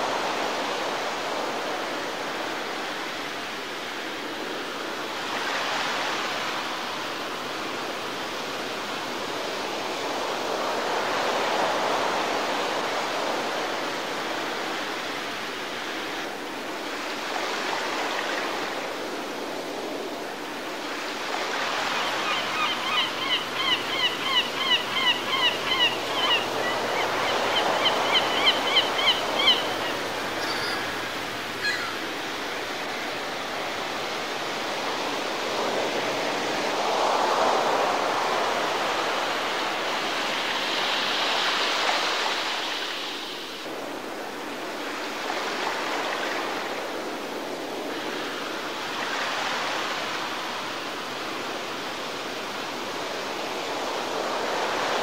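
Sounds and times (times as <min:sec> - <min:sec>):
small waves washing on beach: 0:00.0 - 0:55.0
bird calling short falling notes: 0:31.6 - 0:32.0.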